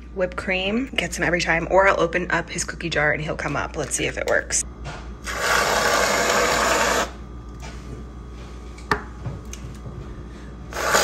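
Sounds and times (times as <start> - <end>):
aerosol can hissing: 10.7 - 11.0.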